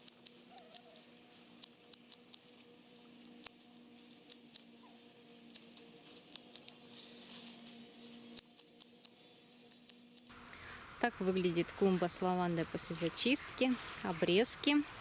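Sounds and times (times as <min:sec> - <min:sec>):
secateurs snipping stems: 0:00.0 - 0:10.9
foliage rustling: 0:00.0 - 0:15.0.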